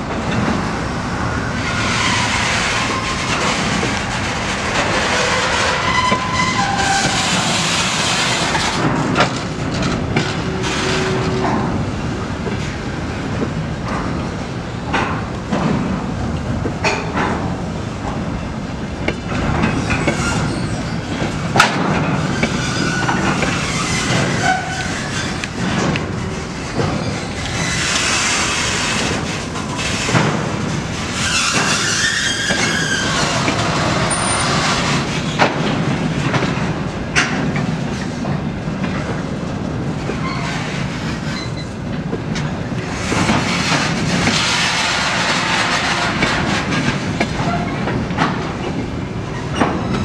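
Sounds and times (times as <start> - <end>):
train wheels clacking over rail joints: 1.6 - 50.0
wheel squeal: 5.0 - 8.8, 19.8 - 21.1, 22.3 - 25.5, 31.2 - 35.0, 40.2 - 41.7.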